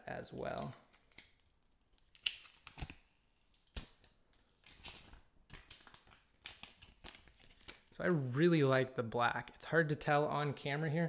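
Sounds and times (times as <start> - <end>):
plastic film crinkling: 4.6 - 8.0.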